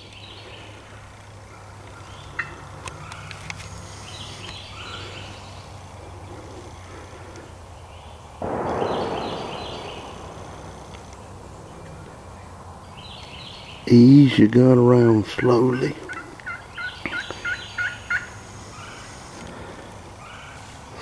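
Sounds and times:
birds chirping: 0.0s - 21.0s
faint clicks: 8.4s - 12.1s
distant shotgun blast: 8.4s - 13.2s.

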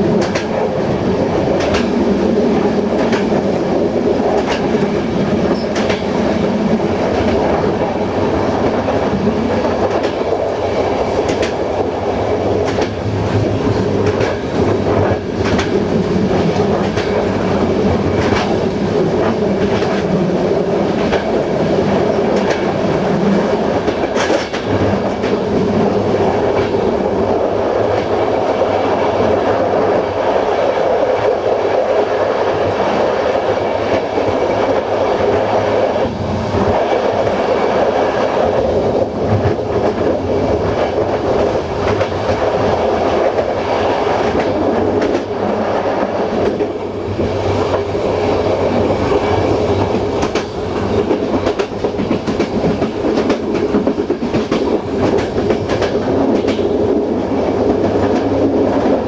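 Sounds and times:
train wheels rumbling on rail: 0.0s - 59.0s
wheels clicking over rail joints: 4.2s - 8.0s, 9.6s - 20.2s.

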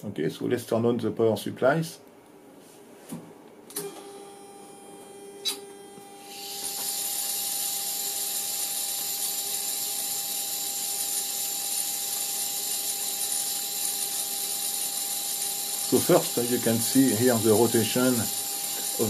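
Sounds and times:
motor-driven gears whirring: 6.2s - 19.0s.

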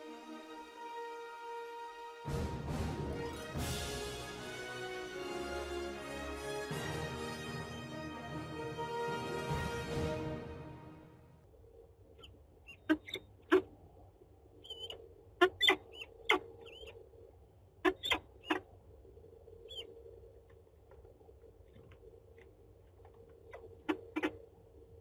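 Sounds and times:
faint hum: 11.4s - 25.0s
bird chirps: 12.2s - 13.6s, 14.6s - 17.0s, 19.6s - 19.9s.

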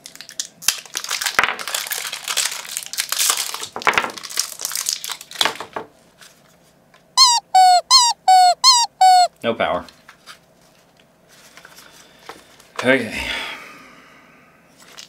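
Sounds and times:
plastic packaging crinkling: 0.0s - 5.4s
high-pitched chirping squeaks: 7.2s - 9.3s.

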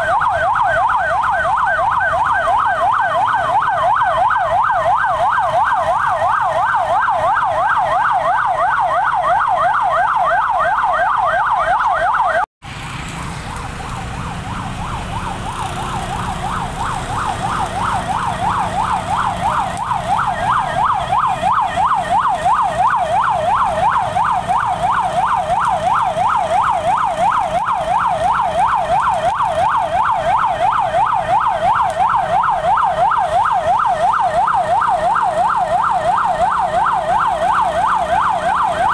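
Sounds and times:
siren yelping: 0.0s - 12.5s, 13.4s - 38.9s.

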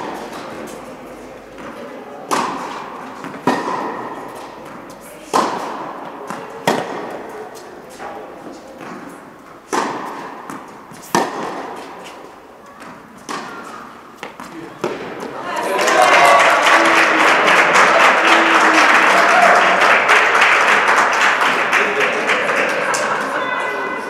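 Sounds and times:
tennis ball hit by rackets: 0.0s - 0.8s, 1.5s - 15.4s.

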